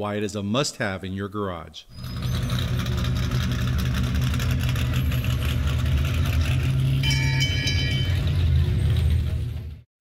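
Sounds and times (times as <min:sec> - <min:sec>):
loud low engine rumble: 0:01.9 - 0:09.9
high ringing tones: 0:06.6 - 0:09.0.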